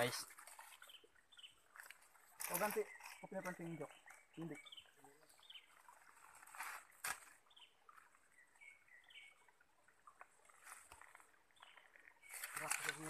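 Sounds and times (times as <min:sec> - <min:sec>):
faint bird chirps: 0:02.5 - 0:06.6, 0:07.4 - 0:09.6.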